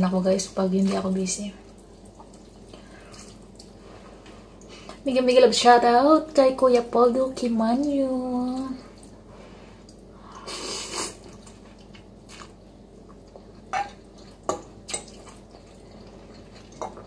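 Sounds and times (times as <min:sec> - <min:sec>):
chewing noodles: 0:09.8 - 0:17.0.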